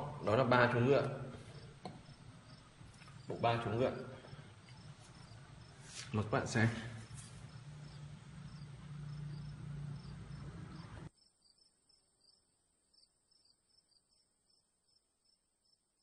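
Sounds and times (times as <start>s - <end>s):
low room hum: 0.0s - 11.1s
cricket chirping: 1.4s - 5.8s, 7.0s - 15.9s.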